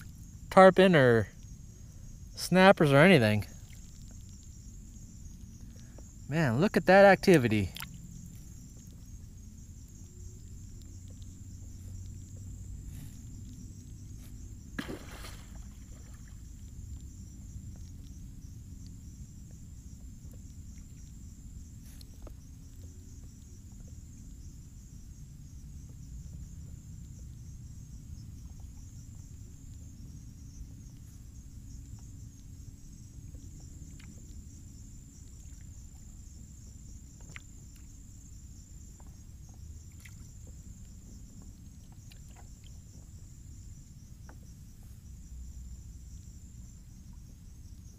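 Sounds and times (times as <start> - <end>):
high-pitched insect chorus: 0.0 - 47.9
water rumbling against hull: 1.3 - 47.9.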